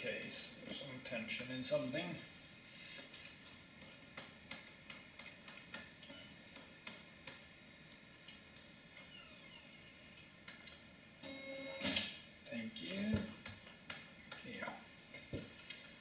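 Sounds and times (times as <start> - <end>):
computer humming: 0.0 - 16.0
optical drive whine spinning down: 9.0 - 10.2.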